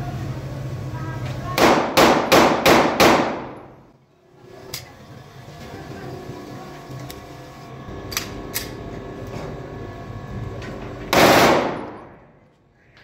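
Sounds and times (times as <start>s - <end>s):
pistol shot: 1.6s - 3.6s, 11.1s - 12.0s.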